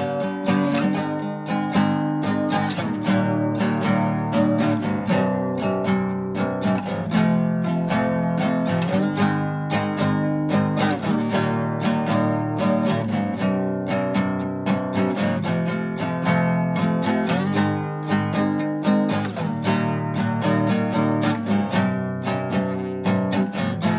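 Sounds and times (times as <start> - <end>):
acoustic guitar strumming: 0.0 - 23.9.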